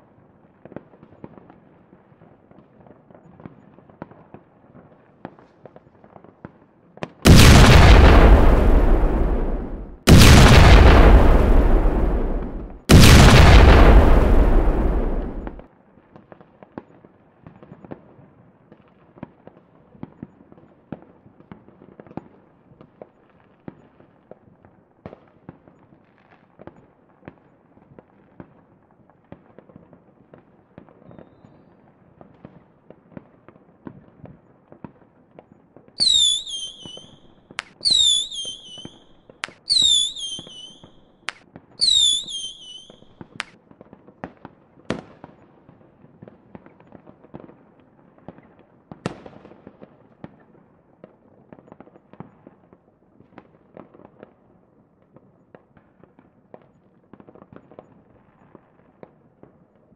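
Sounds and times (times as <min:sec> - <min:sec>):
firework bangs: 0:07.2 - 0:15.6, 0:36.0 - 0:43.5
falling firework whistles: 0:07.3 - 0:15.6, 0:36.0 - 0:41.0, 0:41.8 - 0:43.5
fireworks crackling: 0:07.3 - 0:15.6, 0:36.0 - 0:43.6.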